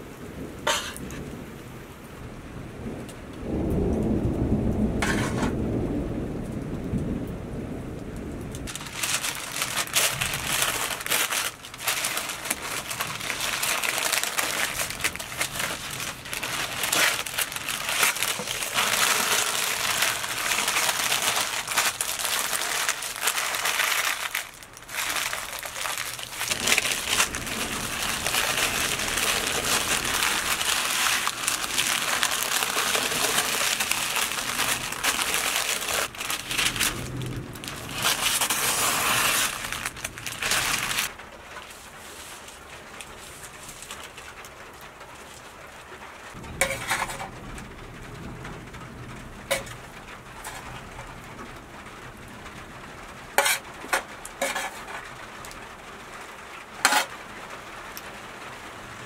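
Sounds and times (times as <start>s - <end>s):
paper crinkling and rustling: 8.6s - 47.7s, 49.4s - 51.6s, 53.2s - 57.2s.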